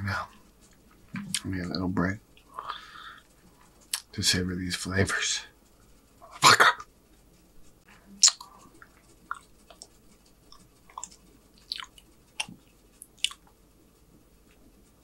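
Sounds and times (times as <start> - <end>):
person chewing food: 8.2 - 13.6.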